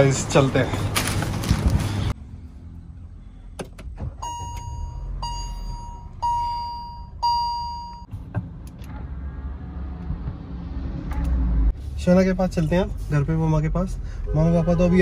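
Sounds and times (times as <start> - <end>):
car warning chime beeping: 4.1 - 8.1.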